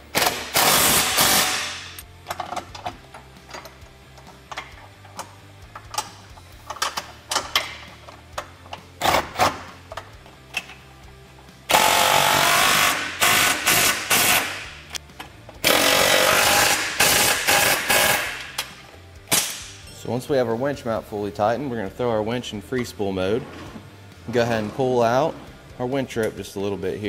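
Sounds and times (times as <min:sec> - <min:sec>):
impact wrench hammering: 0:00.1 - 0:02.6, 0:11.7 - 0:14.8, 0:15.6 - 0:18.7.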